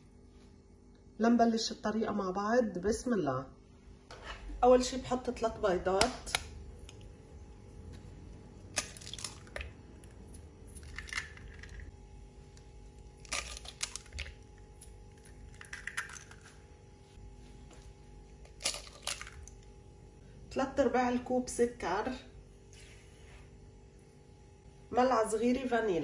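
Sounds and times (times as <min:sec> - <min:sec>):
eggs cracking and shell crunching: 0:08.6 - 0:16.6, 0:18.3 - 0:19.7.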